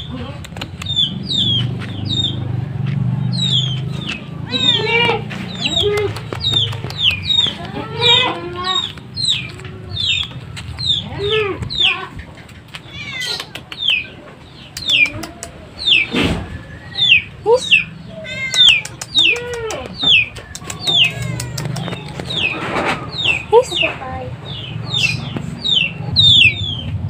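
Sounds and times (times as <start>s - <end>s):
chicks peeping: 0.0s - 27.0s
cat meowing: 4.3s - 8.9s, 12.8s - 13.5s, 18.1s - 20.0s, 20.7s - 22.4s.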